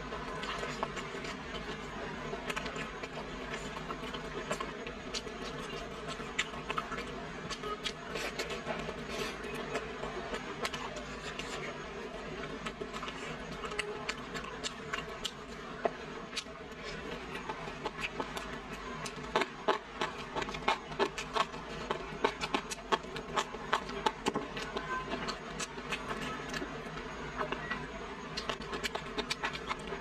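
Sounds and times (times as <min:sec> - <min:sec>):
close-up chewing mouth clicks: 0:00.3 - 0:11.8, 0:12.4 - 0:26.7, 0:27.3 - 0:30.0.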